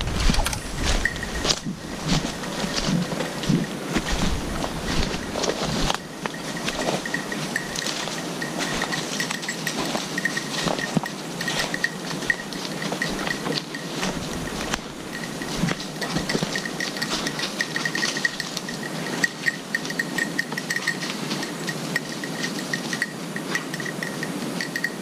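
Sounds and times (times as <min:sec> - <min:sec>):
twigs and dead leaves crackling: 0:00.0 - 0:20.0
small collar bell ringing: 0:00.8 - 0:25.0.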